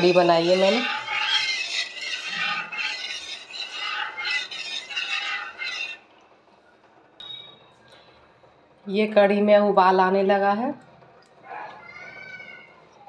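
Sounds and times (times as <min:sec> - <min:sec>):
metal ladle scraping steel pan: 0:00.0 - 0:06.0.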